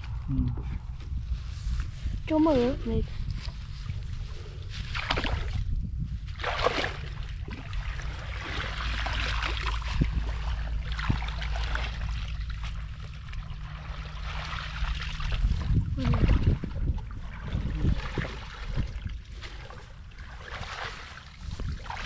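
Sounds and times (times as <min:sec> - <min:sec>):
low rumble: 0:00.0 - 0:22.0
water sloshing and trickling: 0:00.8 - 0:22.0.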